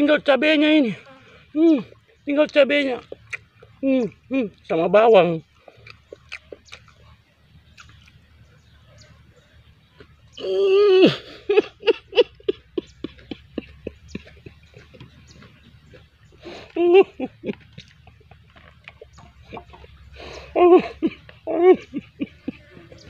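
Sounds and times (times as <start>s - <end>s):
lip smacks and chewing: 3.0s - 4.2s, 5.5s - 8.3s, 13.0s - 16.8s, 17.5s - 20.0s.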